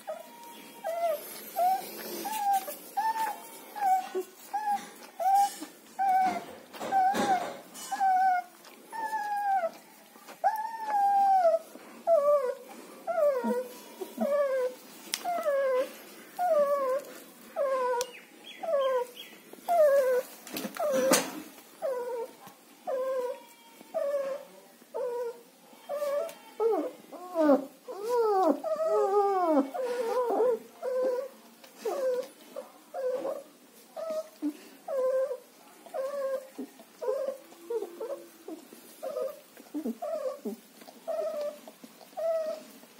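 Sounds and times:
puppy whimpering: 0.0 - 42.9.

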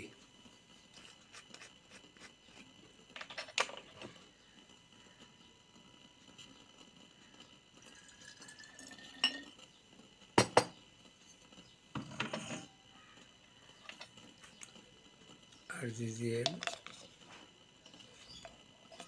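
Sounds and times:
spoon clinking against glass: 8.8 - 9.5.

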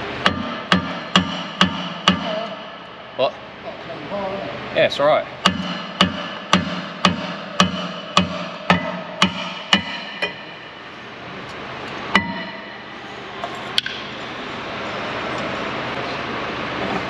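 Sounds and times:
hammer ringing on brake disc: 0.2 - 3.2, 5.4 - 10.9, 12.1 - 13.0.

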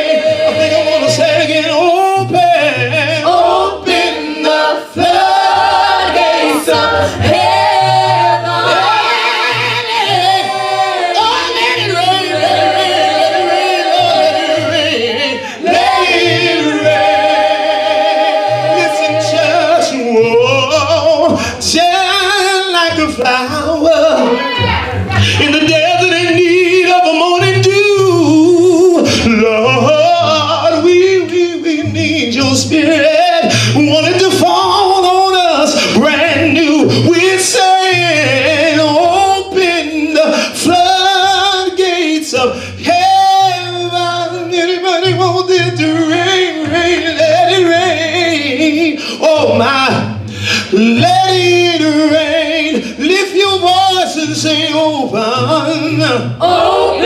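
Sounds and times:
choir singing in harmony: 0.0 - 21.9, 56.2 - 57.0
low bass: 5.0 - 40.8.

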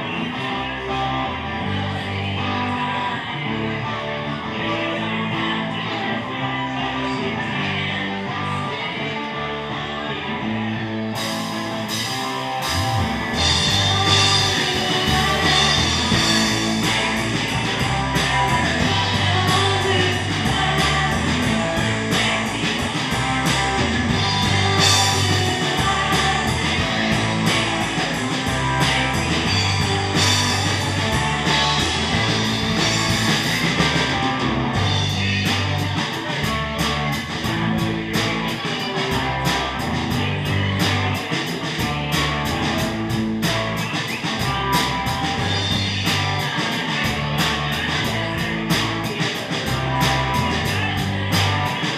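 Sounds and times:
person singing: 0.0 - 42.7
bass guitar: 0.0 - 51.9
electric guitar: 0.0 - 51.9
drums with steady beat: 11.1 - 51.9.

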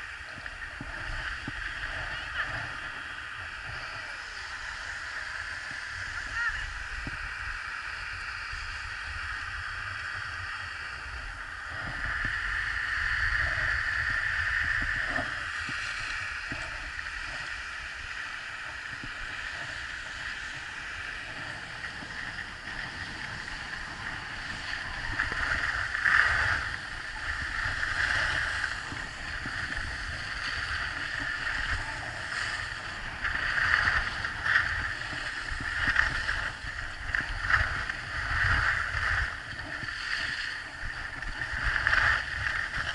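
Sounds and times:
wind rumbling on microphone: 0.0 - 42.9
skis scraping on snow: 13.3 - 42.9.

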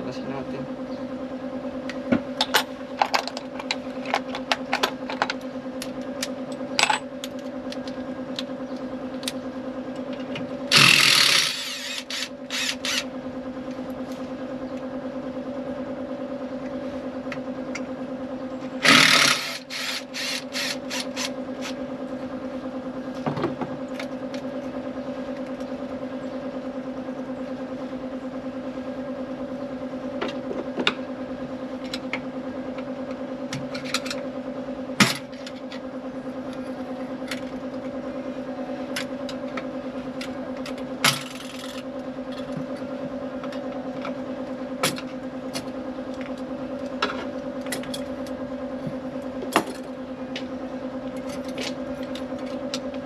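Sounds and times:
steady low hum: 0.0 - 53.0
power tool whirring: 10.7 - 13.1, 18.8 - 21.8.

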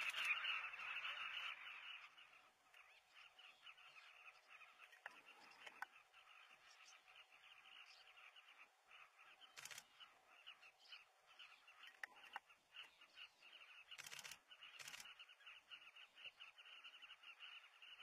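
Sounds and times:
bird colony calls chatter: 0.0 - 18.0
camera shutter clicks: 9.6 - 9.9, 14.0 - 15.1.

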